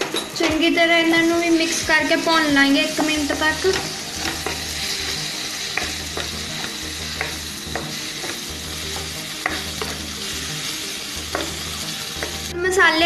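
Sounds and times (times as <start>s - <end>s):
masala sizzling in oil: 0.0s - 13.0s
spatula clicking on pan: 3.1s - 10.1s.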